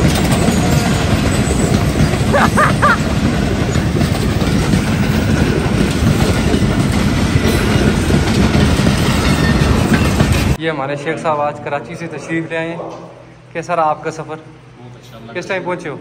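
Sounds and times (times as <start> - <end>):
train wheels on rails: 0.0 - 10.6.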